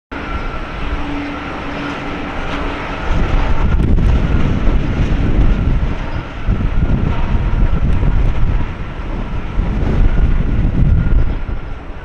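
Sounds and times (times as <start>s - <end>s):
jet engine whine: 0.1s - 12.0s
low rumble: 0.1s - 12.0s.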